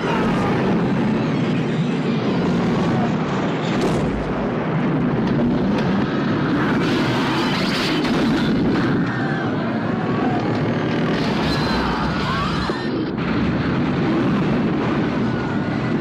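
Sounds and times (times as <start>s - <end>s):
train rumbling and grinding: 0.0s - 16.0s
metal screeching: 11.0s - 13.1s.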